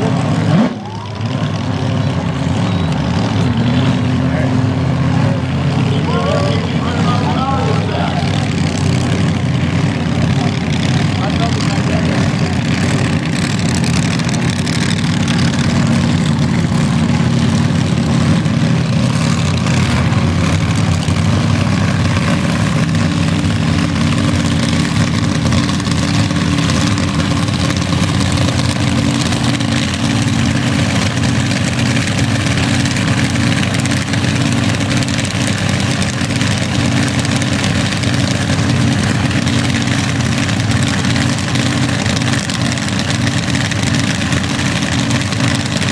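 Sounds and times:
race car engines idling: 0:00.0 - 0:45.9.

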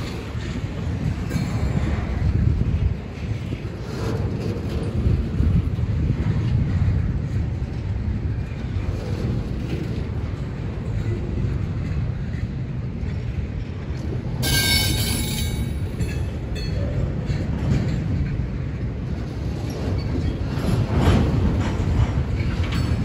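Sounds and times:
freight train wheels rumbling: 0:00.0 - 0:23.0
high-pitched wheel squeal: 0:14.4 - 0:15.7.

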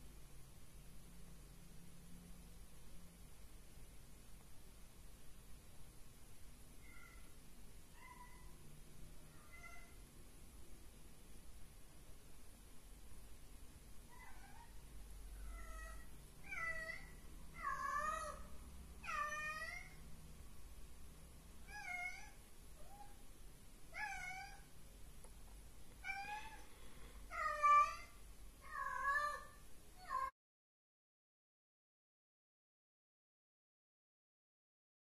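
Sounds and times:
cat meowing: 0:06.8 - 0:07.3, 0:08.0 - 0:08.5, 0:09.3 - 0:10.0, 0:14.1 - 0:14.8, 0:15.4 - 0:20.0, 0:21.7 - 0:23.2, 0:23.9 - 0:24.7, 0:26.0 - 0:26.7, 0:27.3 - 0:30.3.

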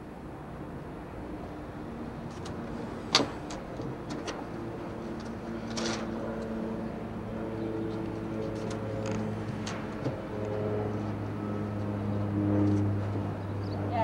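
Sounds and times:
low machine hum: 0:00.0 - 0:14.0.

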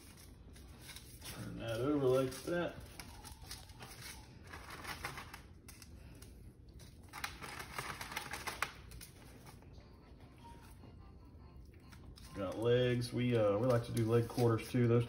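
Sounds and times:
paper rustling and crackling: 0:00.0 - 0:09.6, 0:12.1 - 0:15.0.

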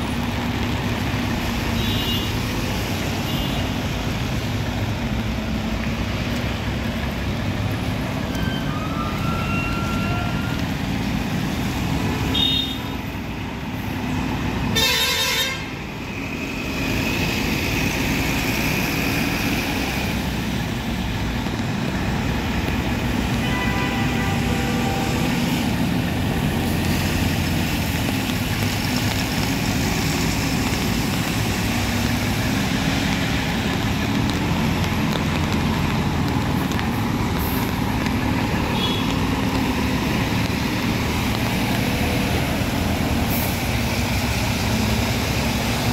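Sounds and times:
vehicle horn: 0:14.8 - 0:15.6, 0:23.4 - 0:25.4.

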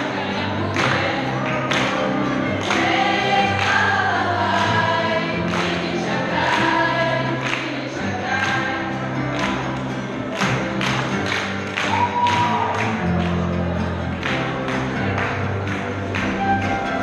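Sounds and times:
choir of young voices singing: 0:00.0 - 0:10.1.

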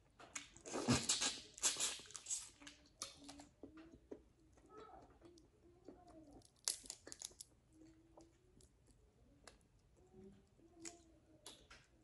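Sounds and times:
crisp crunching snaps: 0:00.2 - 0:09.6.

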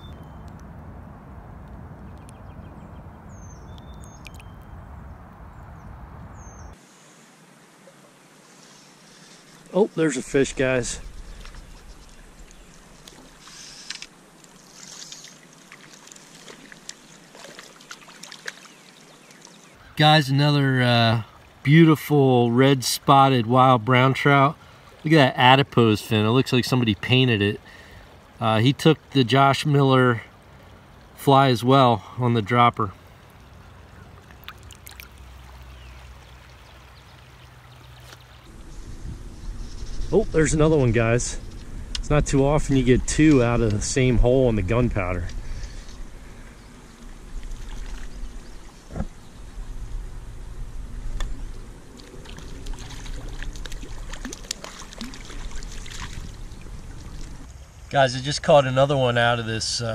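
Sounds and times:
river water trickling: 0:01.6 - 0:05.8, 0:06.4 - 0:59.8
shallow stream hissing: 0:06.8 - 0:19.8, 0:21.0 - 0:28.7, 0:29.4 - 0:57.9
faint clicks: 0:11.3 - 0:17.0
fish splashing at surface: 0:14.6 - 0:18.9, 0:51.9 - 0:57.5.

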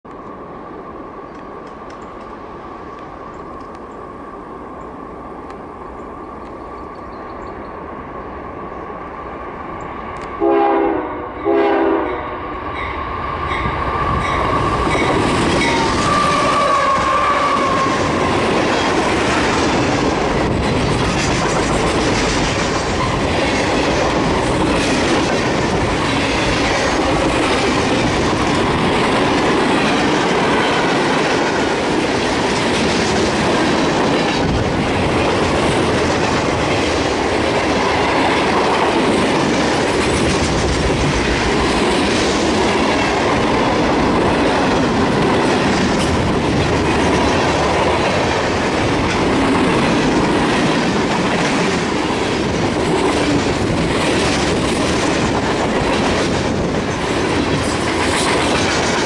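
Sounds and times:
diesel train rumble: 0:00.3 - 0:59.0
train horn blasts: 0:10.4 - 0:12.5, 0:15.6 - 0:18.0
wheels clacking over rail joints: 0:13.6 - 0:59.0.

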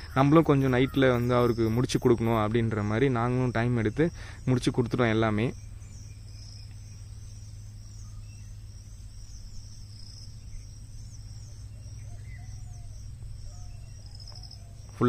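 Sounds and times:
faint gliding calls: 0:00.0 - 0:15.0
insects chirring: 0:00.0 - 0:15.0
low steady hum: 0:00.0 - 0:15.0.

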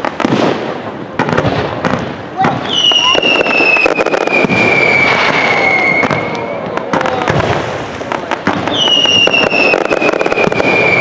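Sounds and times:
fireworks bangs and crackling: 0:00.0 - 0:11.0
falling firework whistles: 0:02.6 - 0:11.0.

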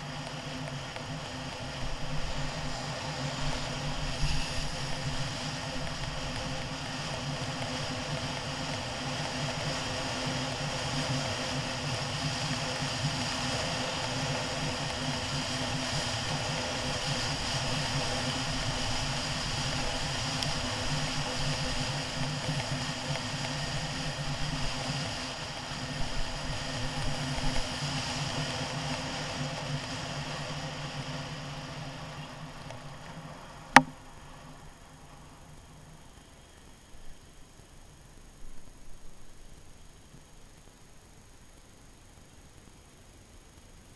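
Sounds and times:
wind and road noise: 0:00.0 - 0:33.9.

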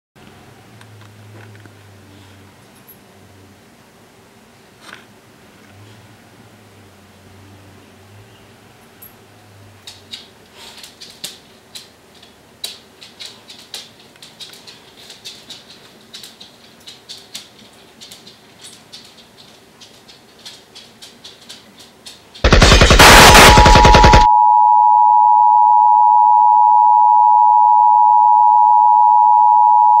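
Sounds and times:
loud rapid crackling: 0:22.4 - 0:24.3
high test tone: 0:22.8 - 0:30.0.

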